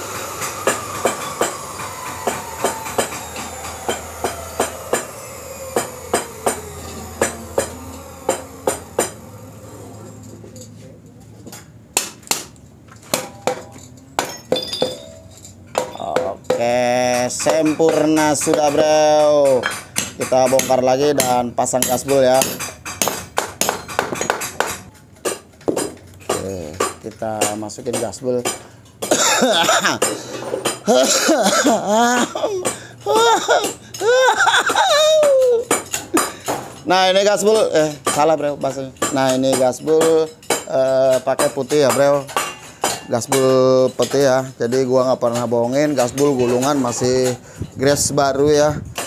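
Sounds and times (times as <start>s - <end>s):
metal parts knocking and clinking: 12.9s - 16.4s
people laughing: 29.1s - 30.0s, 30.8s - 35.6s
people coughing: 29.1s - 30.1s.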